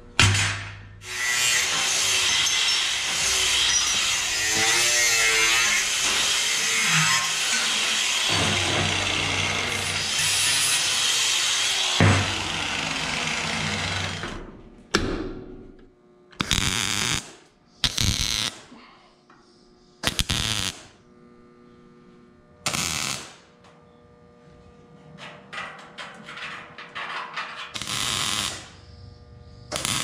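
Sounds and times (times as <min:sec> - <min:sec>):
crackling tack welding: 0:01.0 - 0:14.3, 0:16.4 - 0:18.7, 0:20.0 - 0:21.1, 0:22.6 - 0:23.8, 0:24.8 - 0:30.0.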